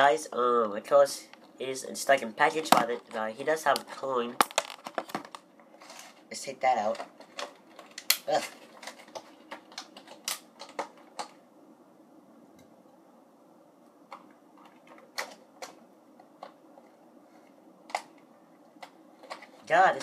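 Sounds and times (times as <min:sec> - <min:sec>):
plastic packaging clicking and crackling: 0:02.5 - 0:11.4, 0:14.1 - 0:17.0, 0:17.9 - 0:20.0.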